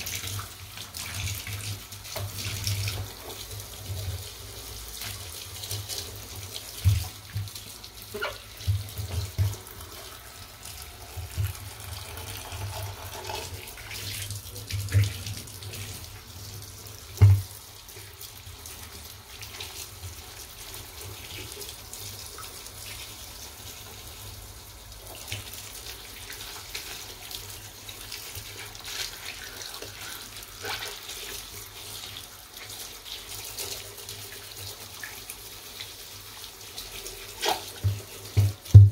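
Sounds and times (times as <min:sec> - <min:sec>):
tap water running and splashing: 0:00.0 - 0:38.9.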